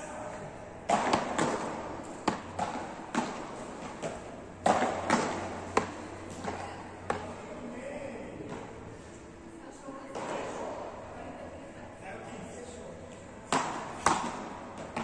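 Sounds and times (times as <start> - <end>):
rackets hitting balls: 0.8 - 7.4, 13.5 - 15.0.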